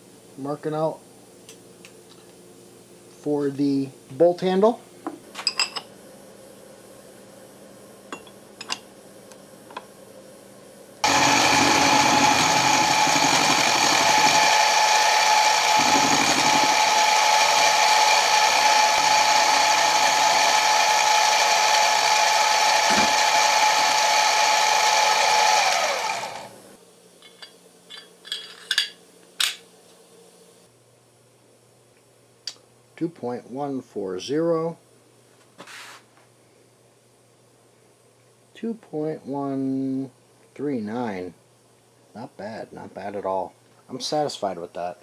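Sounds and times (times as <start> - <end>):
mill whining while cutting metal: 11.0 - 26.6.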